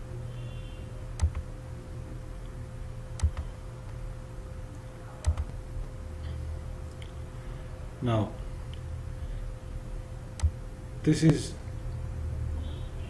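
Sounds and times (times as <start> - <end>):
low electrical hum: 0.0 - 13.0
computer mouse button clicking: 1.2 - 1.4, 3.2 - 3.5, 5.3 - 5.6.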